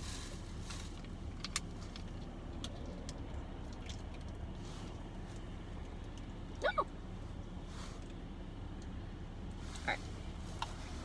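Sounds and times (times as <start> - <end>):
soft rustle: 0.0 - 1.2, 9.5 - 11.0
low rumble of car cabin: 0.0 - 11.0.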